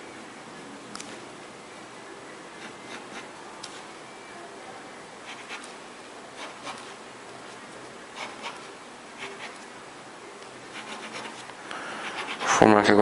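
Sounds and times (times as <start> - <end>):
steady background hiss: 0.0 - 13.0
pencil scratching on paper: 2.6 - 3.8, 5.2 - 5.8, 6.4 - 9.7, 10.6 - 12.6.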